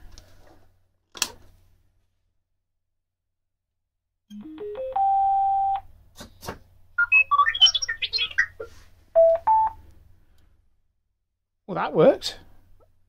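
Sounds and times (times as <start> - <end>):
robot warbling chirps and whistles: 7.0 - 8.7
electronic beeps: 7.0 - 9.8.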